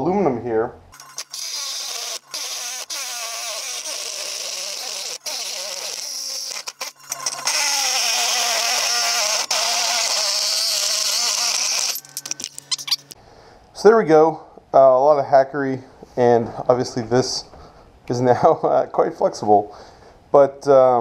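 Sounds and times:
reciprocating saw cutting metal: 1.0 - 12.1.

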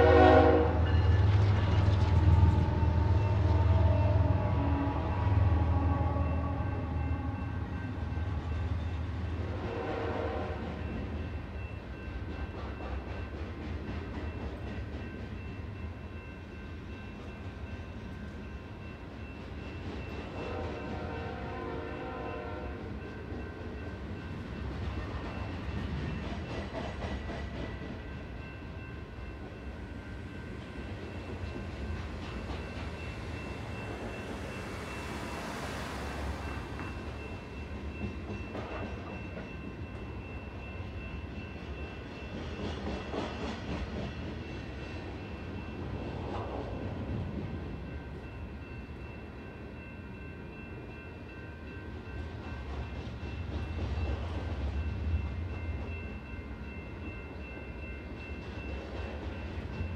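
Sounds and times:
freight train rumbling: 0.0 - 59.9.

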